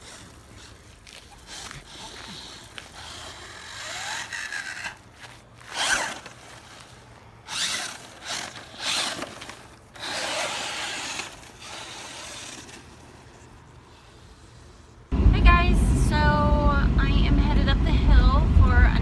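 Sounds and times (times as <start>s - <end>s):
toy car motor whining: 0.0s - 14.7s.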